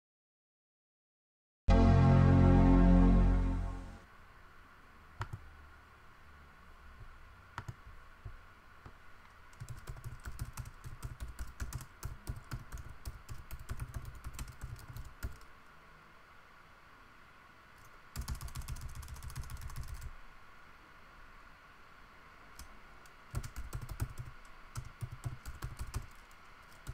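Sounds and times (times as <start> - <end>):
sustained musical tone: 1.7 - 4.1
typing on computer keyboard: 7.6 - 7.8, 9.5 - 15.5, 17.8 - 20.1, 23.3 - 26.9.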